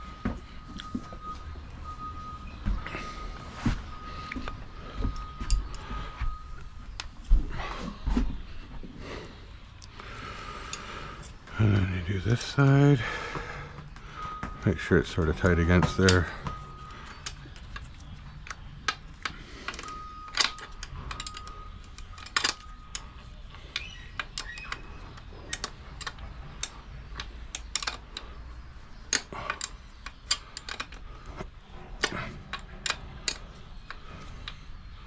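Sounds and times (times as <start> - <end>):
wrench clicking on lock nuts: 17.0 - 28.3, 29.0 - 31.1, 32.0 - 34.7.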